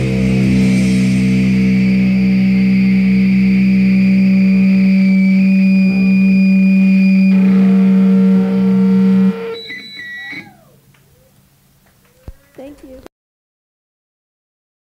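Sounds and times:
band chord droning: 0.0s - 11.3s
faint high ringing tones: 0.0s - 11.3s
high feedback whine: 0.0s - 12.4s.

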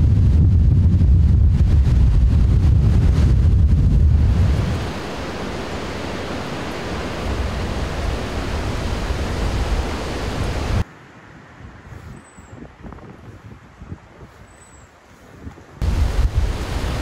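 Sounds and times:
storm wind rushing: 0.0s - 10.8s, 15.8s - 17.0s
wind buffeting microphone: 0.0s - 10.8s, 11.4s - 17.0s.

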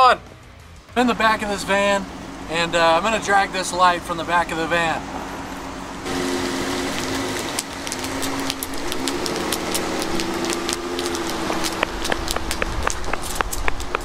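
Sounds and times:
minivan engine accelerating: 0.2s - 14.0s
rapid sharp clicks and scrapes: 6.9s - 14.0s.

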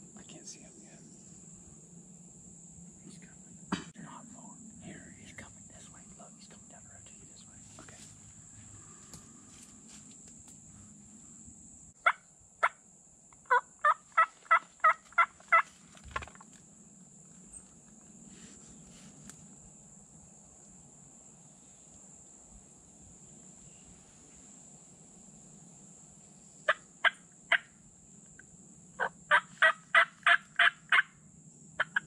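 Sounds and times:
turkey yelping: 13.5s - 15.7s, 29.0s - 31.1s.

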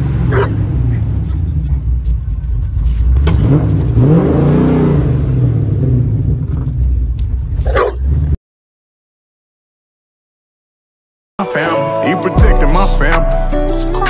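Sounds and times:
car engine revving: 0.0s - 8.4s.

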